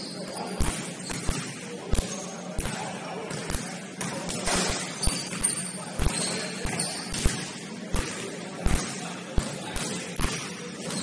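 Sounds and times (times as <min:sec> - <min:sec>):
shoe squeaks: 0:00.0 - 0:02.5, 0:04.4 - 0:07.4, 0:10.8 - 0:11.0
steady background noise: 0:00.0 - 0:11.0
basketball bouncing on gym floor: 0:00.3 - 0:11.0.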